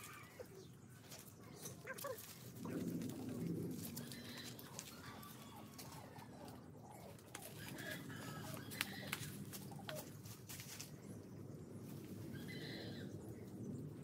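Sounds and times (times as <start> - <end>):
dove cooing: 1.7 - 10.3, 12.3 - 13.0.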